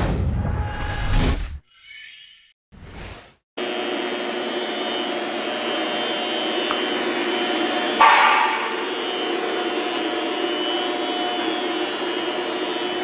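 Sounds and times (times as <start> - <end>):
machinery humming: 3.6 - 13.0.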